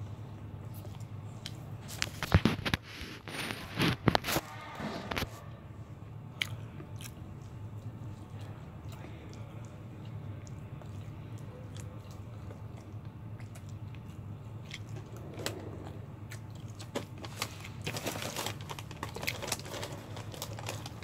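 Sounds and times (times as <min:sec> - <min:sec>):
low hum: 0:00.0 - 0:20.7
crisp chewing of fried chicken: 0:00.1 - 0:04.3, 0:06.3 - 0:21.0.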